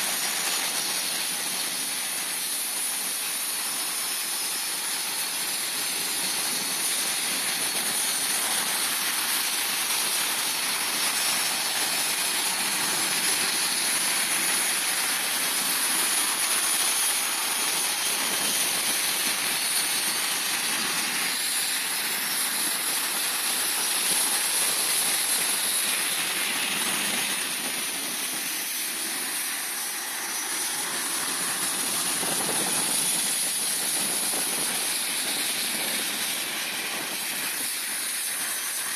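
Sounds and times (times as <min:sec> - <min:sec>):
jet engines whining: 0:08.1 - 0:38.9.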